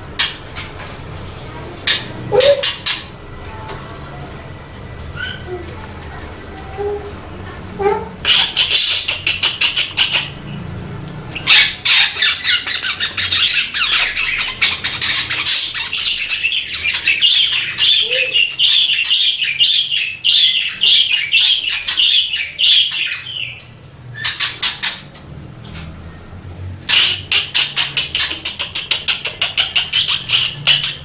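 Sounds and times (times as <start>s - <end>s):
budgerigar chirping and squawking: 1.9s - 3.1s, 8.2s - 10.5s, 11.4s - 23.6s, 24.2s - 25.1s, 26.9s - 31.0s.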